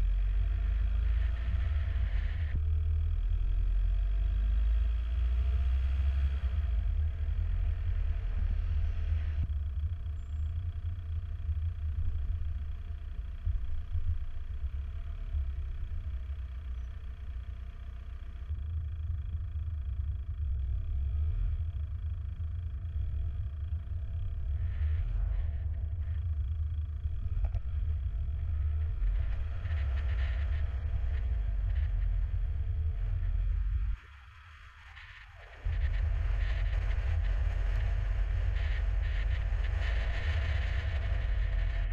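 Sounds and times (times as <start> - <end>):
car engine and road noise: 0.0 - 41.9.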